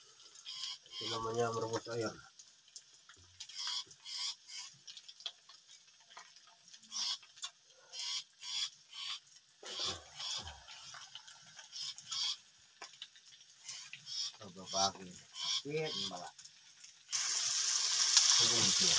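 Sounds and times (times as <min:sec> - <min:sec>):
wood fire crackling: 0:00.0 - 0:18.9
fire pops and hisses: 0:16.8 - 0:18.9.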